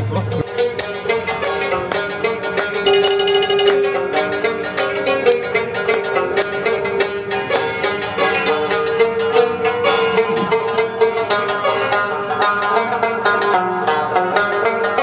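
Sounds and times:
plucked string instrument: 0:00.0 - 0:15.0
person clapping along: 0:00.5 - 0:07.7.

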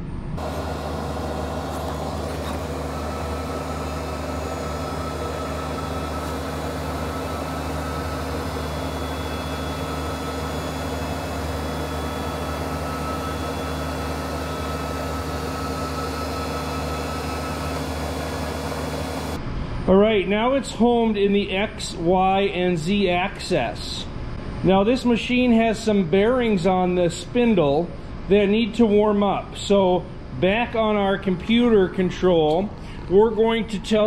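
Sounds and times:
router axis drive whine: 0:00.0 - 0:19.5
low machine hum: 0:00.0 - 0:34.0.

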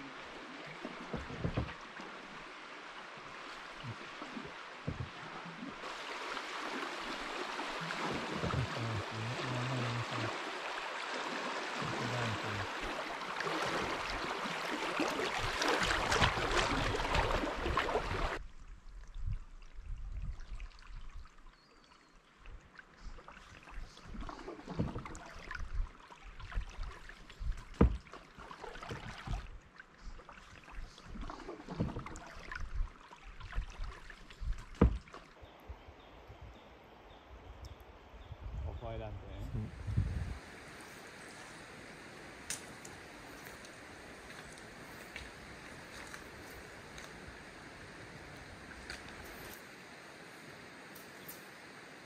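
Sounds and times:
paddle splashes and knocks: 0:00.0 - 0:18.4, 0:23.2 - 0:35.4
river water rushing: 0:00.0 - 0:18.4
moving water: 0:00.0 - 0:52.0.

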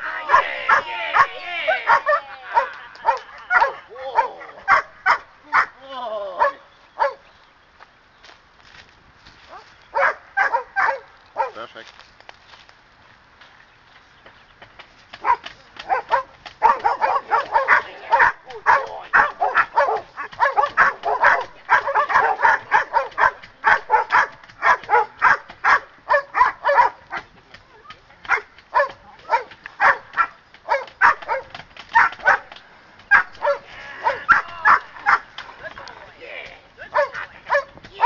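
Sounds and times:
dog barking aggressively: 0:00.3 - 0:05.7, 0:09.9 - 0:11.6, 0:15.2 - 0:27.3, 0:28.3 - 0:35.4, 0:36.9 - 0:37.8.

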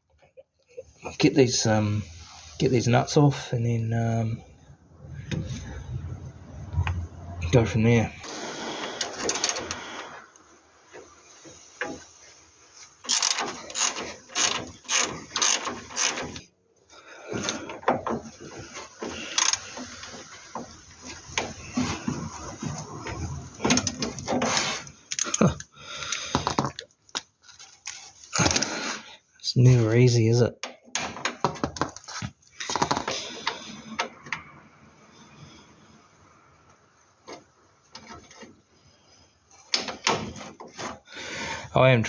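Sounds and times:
ratchet wrench clicking: 0:13.1 - 0:16.4, 0:19.4 - 0:19.6.

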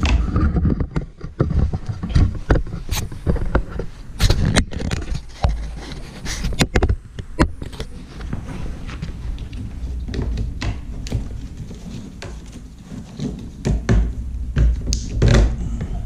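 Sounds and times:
camera handling rumble: 0:00.0 - 0:13.7
hands clicking and scraping plastic: 0:00.0 - 0:16.0.

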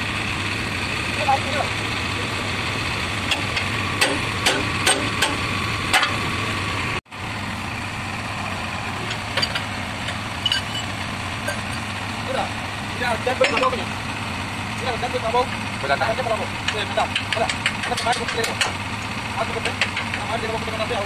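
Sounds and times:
backhoe engine idling: 0:00.0 - 0:21.0
hammer striking metal pins: 0:03.3 - 0:06.2.

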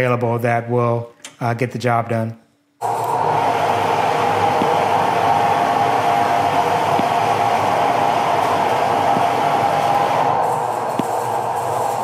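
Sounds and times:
plasma cutter loud hiss: 0:02.8 - 0:12.0.

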